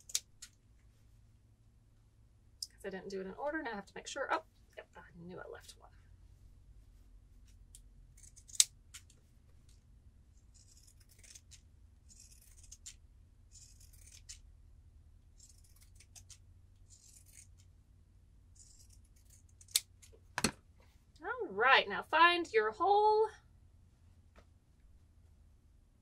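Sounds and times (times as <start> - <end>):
scissor blades clicking: 8.2 - 9.2, 10.5 - 14.4, 15.4 - 17.7, 18.6 - 19.9
scissors snipping fabric: 8.2 - 9.2, 10.4 - 14.4, 15.4 - 17.7, 18.6 - 19.9.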